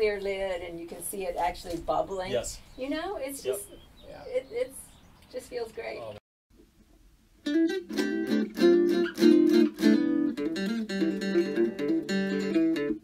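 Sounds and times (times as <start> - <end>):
strummed guitar chords: 7.4 - 13.0.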